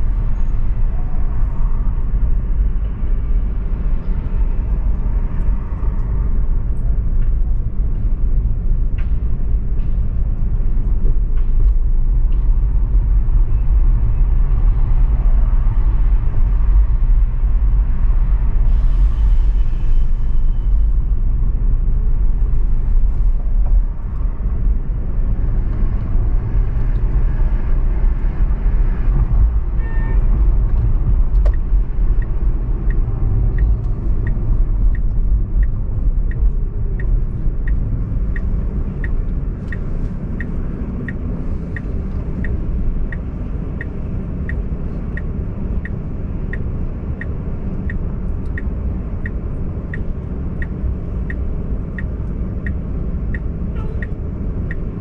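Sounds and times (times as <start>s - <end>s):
car engine and road rumble: 0.0s - 55.0s
steady high tick: 31.4s - 39.8s.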